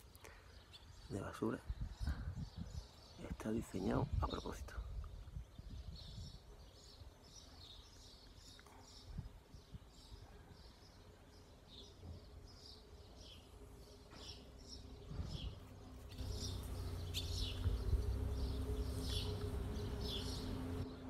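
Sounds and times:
small birds chirping: 0.0 - 21.0
low steady rumble with hum: 16.1 - 20.9.

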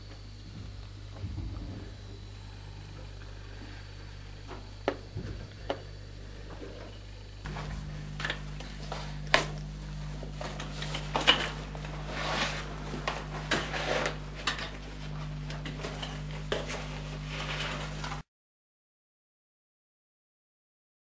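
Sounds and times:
steady low hum: 0.0 - 18.2
metal ladder clinks and scrapes: 10.4 - 18.2.

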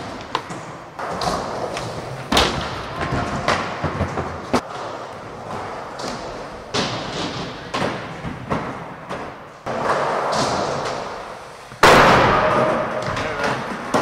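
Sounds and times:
skateboard wheels rolling on wood: 0.0 - 14.0
loud crash: 11.8 - 13.0.

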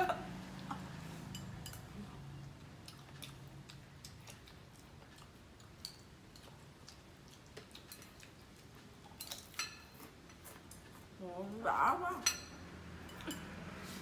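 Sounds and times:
quiet chewing: 0.5 - 11.5.

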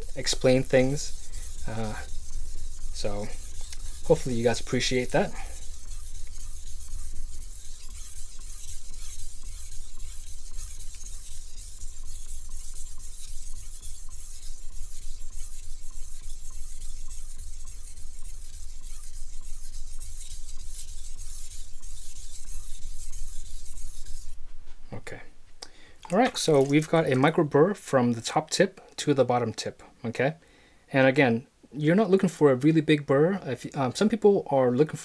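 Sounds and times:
knife scraping on whetstone: 0.0 - 24.4.

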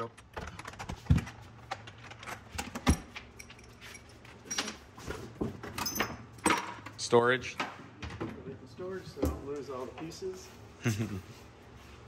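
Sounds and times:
metal parts clicking and clinking: 1.8 - 4.8, 5.6 - 6.9.

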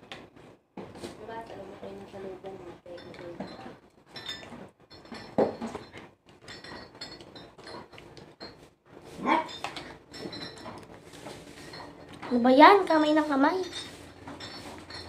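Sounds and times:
dog barking: 9.2 - 9.6.

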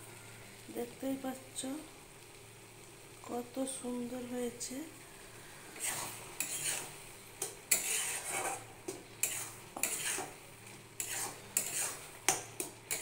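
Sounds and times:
spatula scraping a pan: 5.7 - 13.0.

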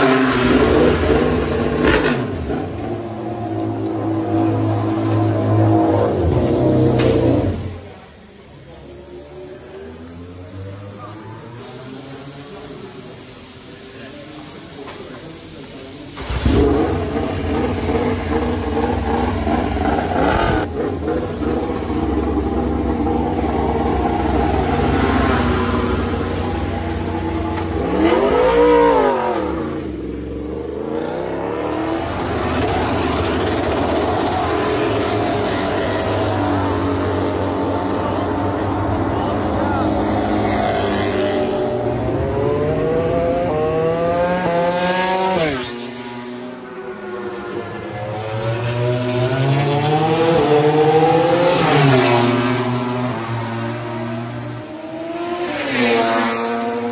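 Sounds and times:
engine revving: 0.0 - 7.9, 16.2 - 56.9
racing motorcycle passing by: 16.4 - 56.9.

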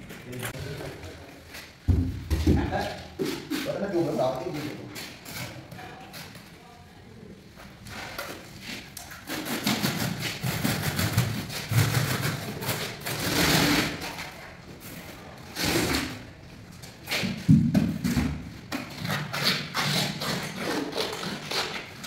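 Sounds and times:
trowel scraping through adhesive: 8.0 - 14.3, 18.8 - 21.9.

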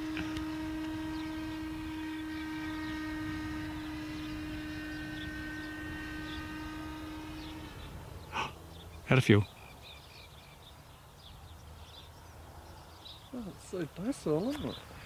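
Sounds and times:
model plane motor drone: 0.0 - 9.1.

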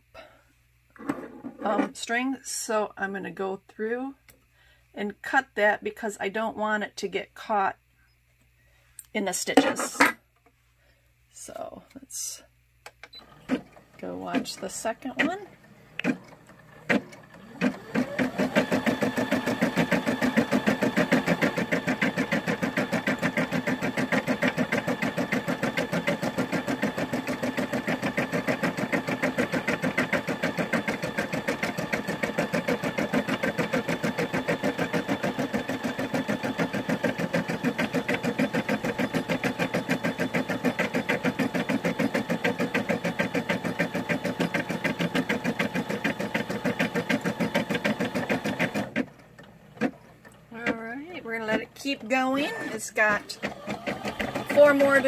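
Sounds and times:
embroidery machine stitching: 13.2 - 55.0.

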